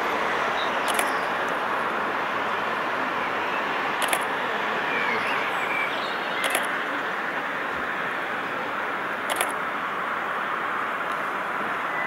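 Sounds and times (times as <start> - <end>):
sharp click: 0.9 - 1.2, 4.0 - 4.3, 6.4 - 6.8, 9.3 - 9.6.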